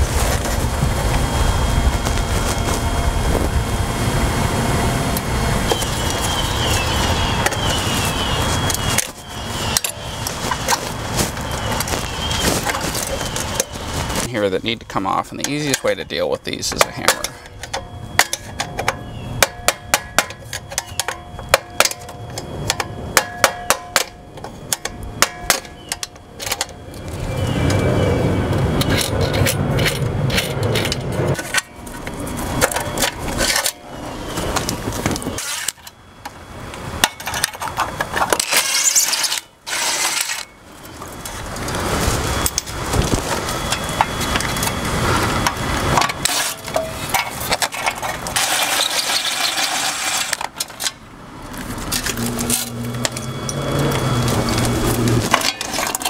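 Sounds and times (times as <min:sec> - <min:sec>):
hammer tapping metal box: 0:22.7 - 0:25.7
scraping and rattling of box: 0:45.0 - 0:50.9.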